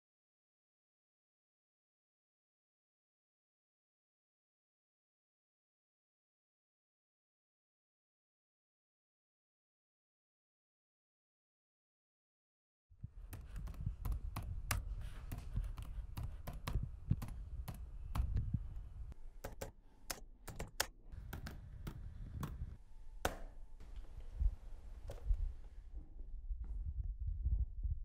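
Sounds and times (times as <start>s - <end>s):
keyboard typing clicks: 13.3s - 23.4s
low rumble: 24.1s - 28.0s.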